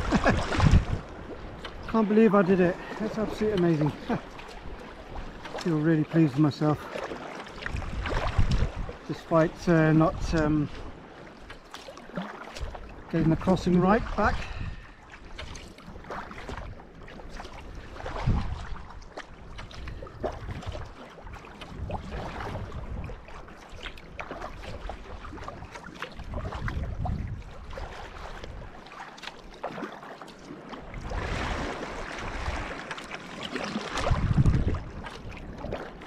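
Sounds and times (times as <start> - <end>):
wind rumbling on microphone: 0.0 - 6.0, 7.6 - 11.0, 12.6 - 28.8, 30.8 - 32.8, 33.6 - 36.0
wash of water: 0.0 - 10.8, 27.6 - 36.0
paddle strokes splashing: 0.0 - 36.0
water slapping against hull: 0.0 - 36.0.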